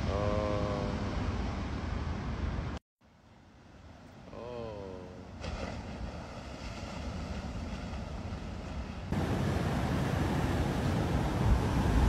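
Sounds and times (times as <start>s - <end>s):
ocean surf breaking: 5.3s - 12.0s
wind on microphone: 6.9s - 12.0s.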